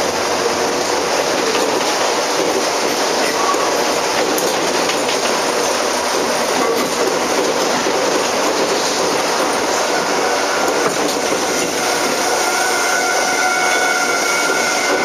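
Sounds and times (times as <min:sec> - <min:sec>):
train wheel and rail rumble: 0:00.0 - 0:15.0.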